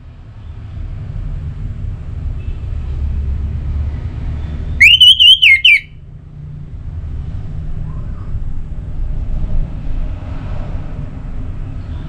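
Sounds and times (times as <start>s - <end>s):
thrush whistled song: 4.8s - 5.9s.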